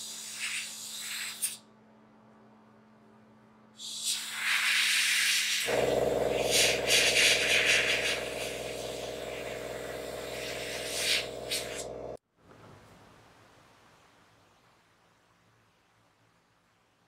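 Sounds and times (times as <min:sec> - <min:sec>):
airbrush spraying hiss: 0:00.0 - 0:01.6, 0:03.8 - 0:11.9
air compressor motor hum: 0:05.6 - 0:12.2.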